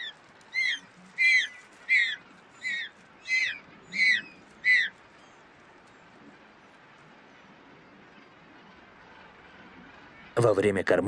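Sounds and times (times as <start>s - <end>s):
penguin chick peeping calls: 0.0s - 5.4s.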